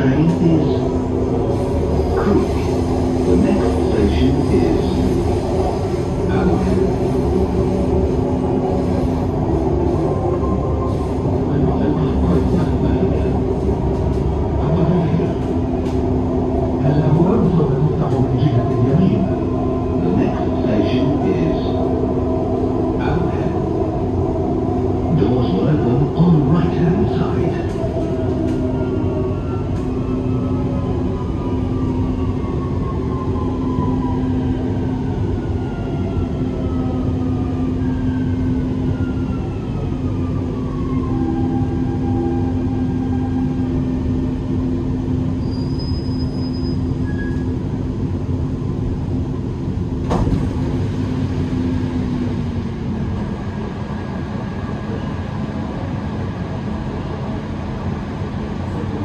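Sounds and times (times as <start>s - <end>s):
train rumbling on rails: 0.0s - 59.0s
electric whine of braking train: 27.7s - 47.8s.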